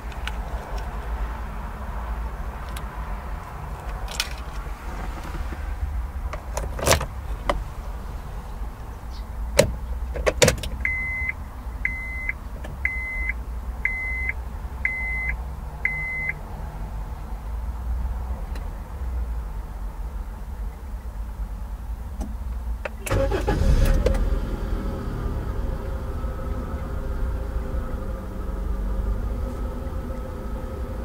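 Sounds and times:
car warning chime beeping: 0:10.8 - 0:16.4
car engine idling: 0:19.6 - 0:31.0.

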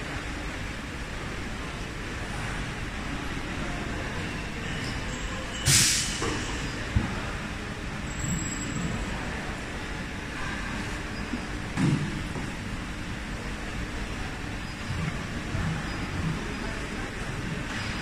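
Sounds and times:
machinery hum: 0:00.0 - 0:18.0
short loud hiss: 0:05.7 - 0:06.2.

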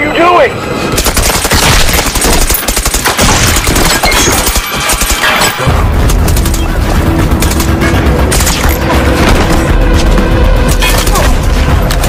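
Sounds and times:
low musical drone: 0:05.4 - 0:12.0.

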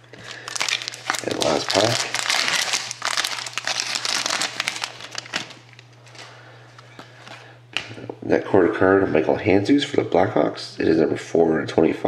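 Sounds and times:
foil wrapper crinkling: 0:00.1 - 0:06.4.

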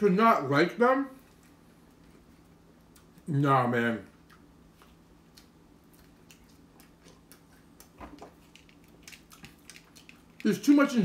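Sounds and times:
low steady hum: 0:00.0 - 0:11.0
person chewing: 0:01.3 - 0:03.3, 0:04.1 - 0:10.7.

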